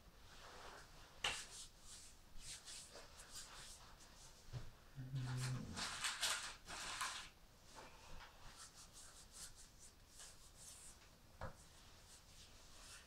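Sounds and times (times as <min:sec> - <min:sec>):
rustling scrape: 0:05.3 - 0:11.0.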